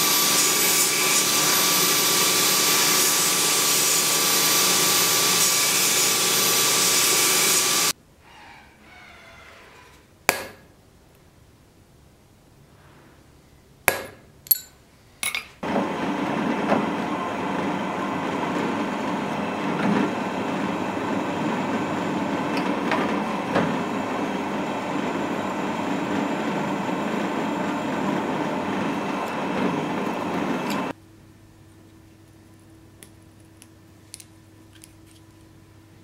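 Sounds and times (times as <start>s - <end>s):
drill press boring steel: 0.0s - 7.9s, 15.6s - 30.9s
hammer striking a punch: 10.3s - 10.6s, 13.9s - 14.2s.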